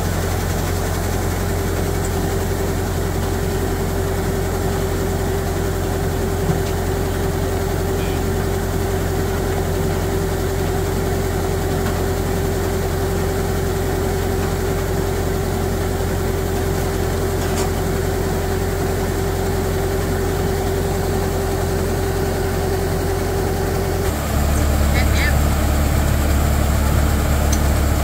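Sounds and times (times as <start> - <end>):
combine harvester engine drone: 0.0 - 28.0
auger whine: 23.3 - 28.0.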